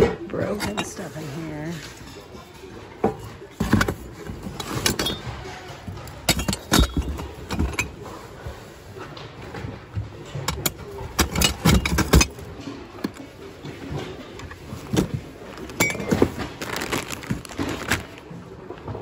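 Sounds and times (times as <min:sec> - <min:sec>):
ornaments and ceramics clinking: 0:06.2 - 0:08.0, 0:15.6 - 0:16.4
cloth and cardboard rustling: 0:14.4 - 0:18.4.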